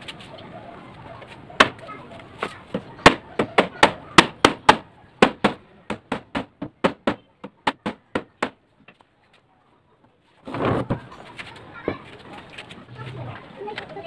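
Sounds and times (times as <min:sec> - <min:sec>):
rubber mallet knocking on wood: 0:02.4 - 0:08.6.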